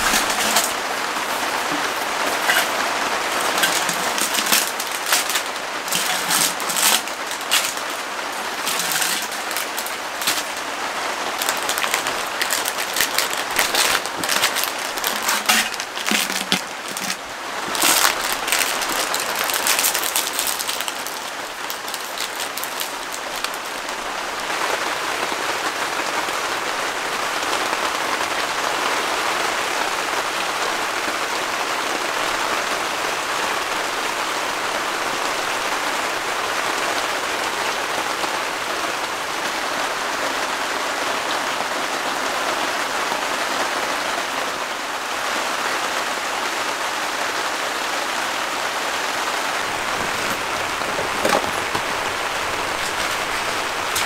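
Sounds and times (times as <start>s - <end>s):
rain falling: 0.0s - 54.0s
sharp crackling clicks: 1.6s - 10.7s, 11.3s - 23.7s.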